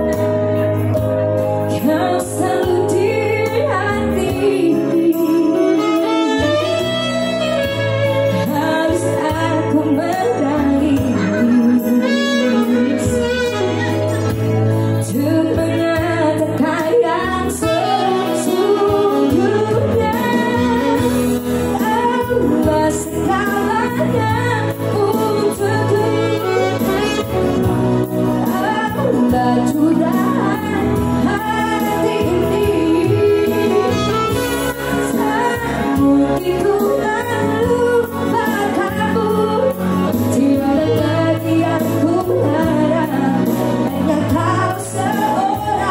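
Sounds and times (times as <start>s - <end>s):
electronic keyboard: 0.0s - 45.9s
woman singing a slow song: 0.0s - 45.9s
saxophone playing: 5.3s - 9.4s, 11.0s - 15.0s, 17.6s - 22.3s, 25.0s - 28.0s, 31.4s - 35.9s.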